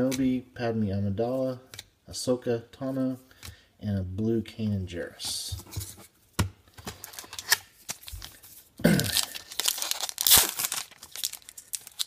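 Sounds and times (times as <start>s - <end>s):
foil pack tearing and crinkling: 9.0s - 12.0s.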